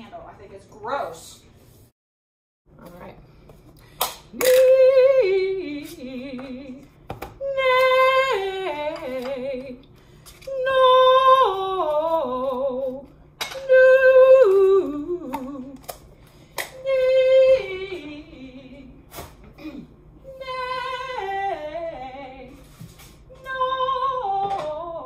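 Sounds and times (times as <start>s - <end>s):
woman singing vocal warm-up: 4.3s - 16.0s, 16.6s - 22.7s, 23.3s - 25.0s.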